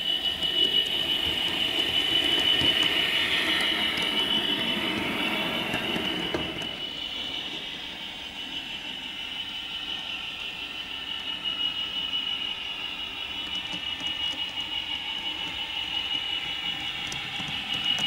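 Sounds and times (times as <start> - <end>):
model train diesel engine sound: 0.0 - 18.0
model train wheels on track: 0.0 - 18.0.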